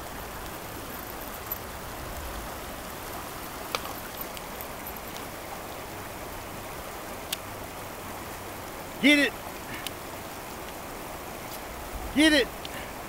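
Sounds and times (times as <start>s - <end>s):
creek water running over rocks: 0.0s - 13.0s.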